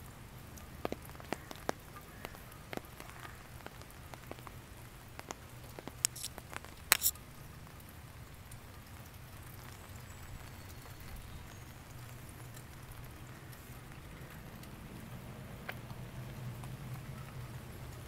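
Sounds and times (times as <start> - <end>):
dripping ticks: 0.0 - 18.0
light rain pattering: 0.0 - 18.0.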